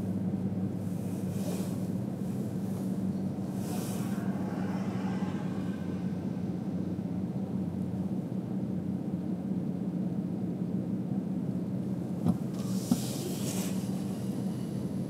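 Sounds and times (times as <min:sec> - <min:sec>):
car driving rumble: 0:00.0 - 0:15.0
brief hiss: 0:12.5 - 0:14.3.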